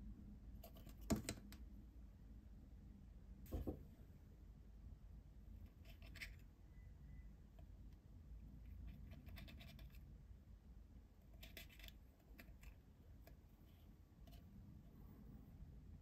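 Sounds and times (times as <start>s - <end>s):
fingertips scratching paper: 8.9s - 10.0s.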